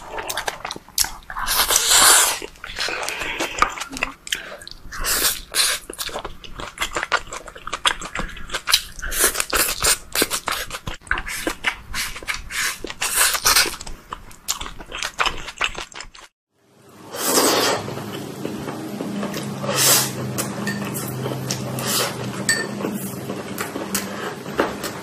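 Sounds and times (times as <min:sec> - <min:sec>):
person chewing with mouth clicks: 0:00.0 - 0:16.3.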